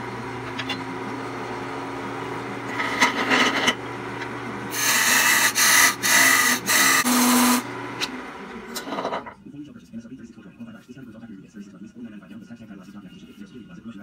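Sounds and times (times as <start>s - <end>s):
turning tool cutting wood: 0.0s - 8.2s
lathe motor humming: 0.0s - 8.6s.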